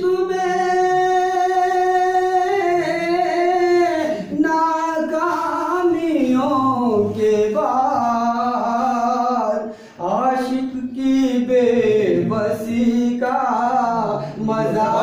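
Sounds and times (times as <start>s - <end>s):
man singing: 0.0s - 15.0s
singer breath: 9.6s - 10.0s.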